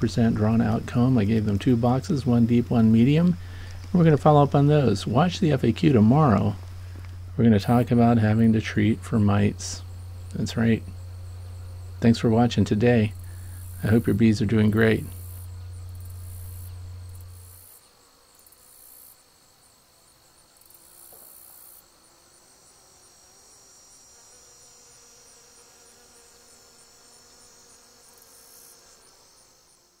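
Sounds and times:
steady low hum: 0:00.0 - 0:17.8
crickets chirping: 0:00.0 - 0:30.0
insect trills: 0:00.0 - 0:30.0.

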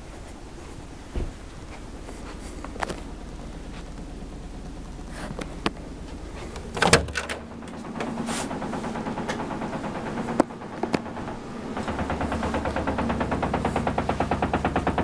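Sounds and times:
sharp clatter: 0:06.5 - 0:15.0.

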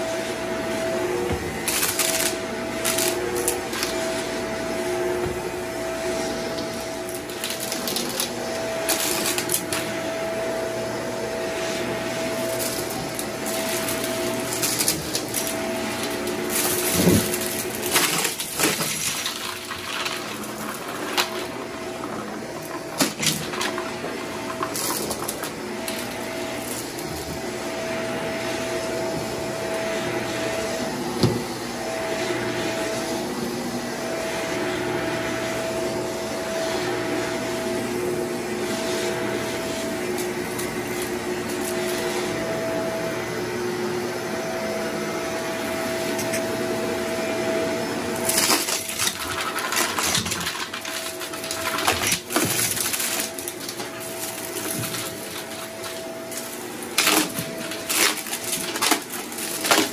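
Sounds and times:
vacuum cleaner running: 0:00.0 - 0:59.9
debris crackling in vacuum: 0:48.2 - 0:59.9.

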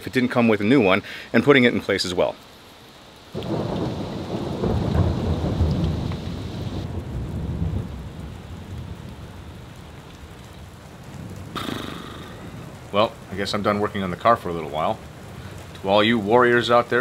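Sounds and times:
rain falling on puddles: 0:00.0 - 0:17.0
thunder rumble: 0:03.4 - 0:15.6.

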